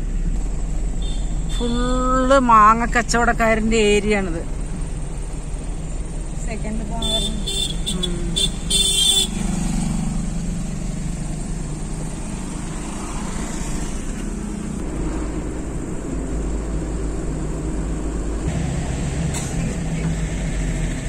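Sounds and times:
car engine and road rumble: 0:00.0 - 0:21.0
vehicle horn tooting: 0:07.0 - 0:09.4.

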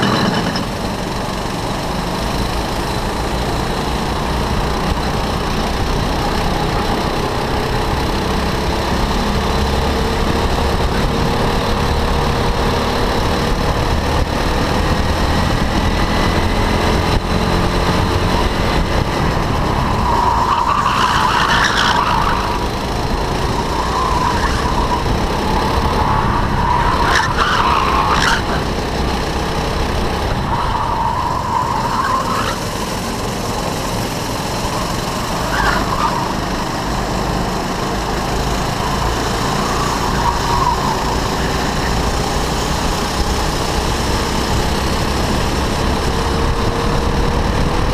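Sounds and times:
go-kart engine running: 0:00.0 - 0:47.9
tyre squeals: 0:19.9 - 0:28.7, 0:30.4 - 0:33.0, 0:34.6 - 0:36.6, 0:38.6 - 0:42.0.

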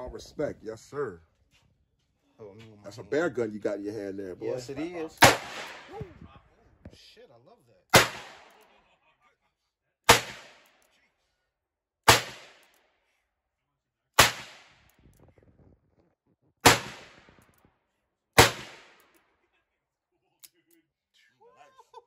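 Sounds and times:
revolver gunshots: 0:05.2 - 0:06.1, 0:07.9 - 0:08.6, 0:10.1 - 0:10.7, 0:12.1 - 0:12.7, 0:14.2 - 0:14.9, 0:16.6 - 0:17.6, 0:18.4 - 0:19.1.

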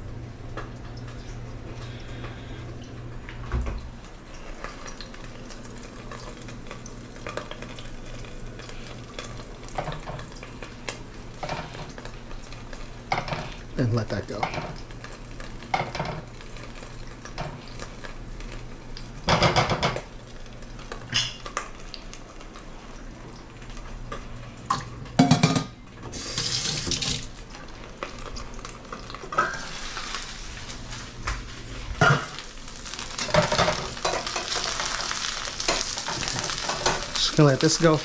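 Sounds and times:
dumplings sizzling in a pan: 0:04.2 - 0:24.4, 0:26.1 - 0:38.0
pots and pans clanking: 0:19.3 - 0:20.1, 0:24.7 - 0:27.2, 0:32.0 - 0:32.4, 0:33.2 - 0:37.2
faucet running into sink: 0:26.1 - 0:27.3.

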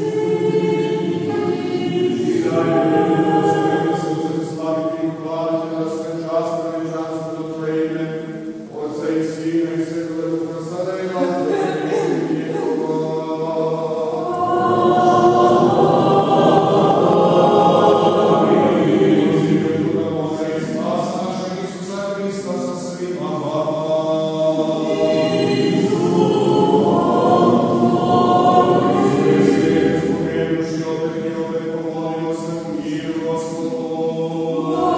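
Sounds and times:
group of voices chanting: 0:00.0 - 0:05.0, 0:11.2 - 0:21.8, 0:23.2 - 0:34.9.

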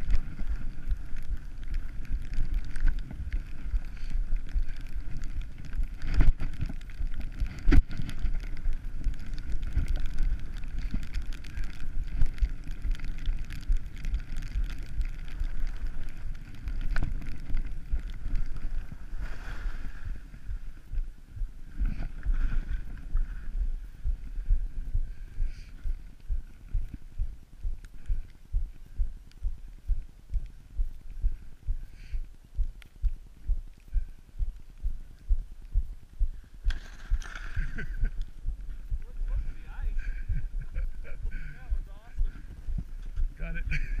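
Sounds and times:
skis sliding on packed snow: 0:00.0 - 0:20.8, 0:21.8 - 0:23.6
wind buffeting microphone: 0:00.0 - 0:44.0.

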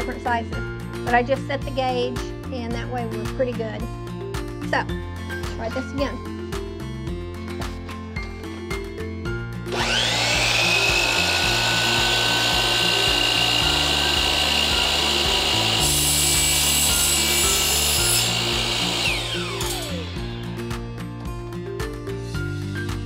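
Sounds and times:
miter saw motor whining: 0:09.7 - 0:21.0
saw blade grinding metal rod: 0:09.8 - 0:20.6.

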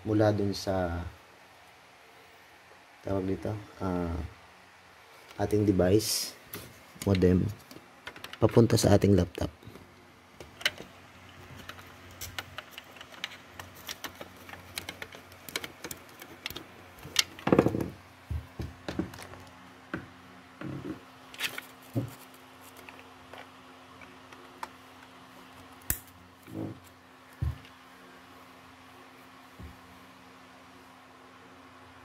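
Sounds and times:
faint steady hum: 0:00.0 - 0:32.0
plastic handling clicks and knocks: 0:07.0 - 0:08.5, 0:10.4 - 0:21.0.

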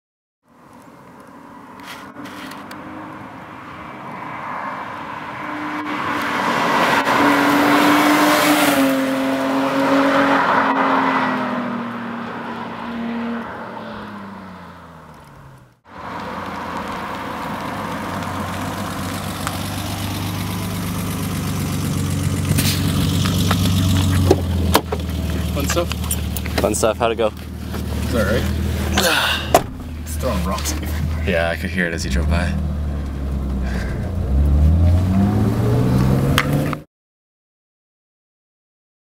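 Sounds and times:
car driving past: 0:15.9 - 0:36.8.

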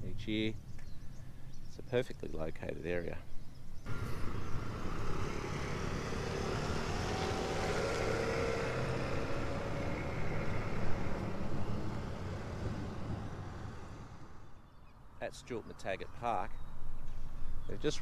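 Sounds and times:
motorcycle engines approaching: 0:03.9 - 0:14.7.

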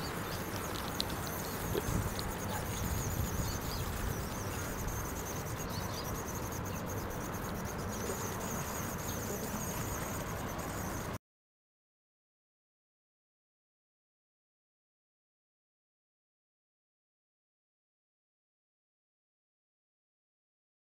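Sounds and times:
high-pitched insect buzz: 0:00.0 - 0:11.2.

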